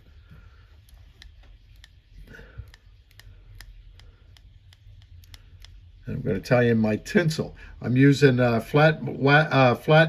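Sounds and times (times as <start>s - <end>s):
steady low hum: 0.0s - 10.0s
faint small clicks of hand work: 0.7s - 6.0s.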